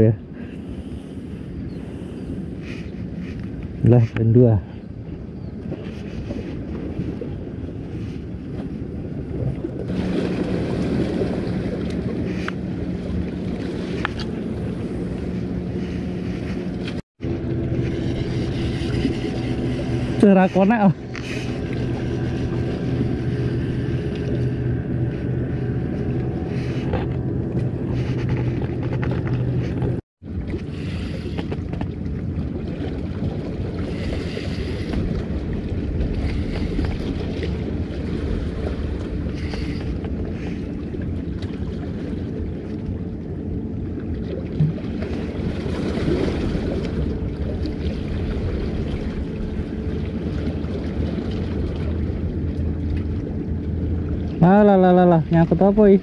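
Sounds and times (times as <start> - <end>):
wind buffeting microphone: 0.0 - 56.0
low steady hum: 0.2 - 56.0
sea waves washing in: 0.3 - 56.0.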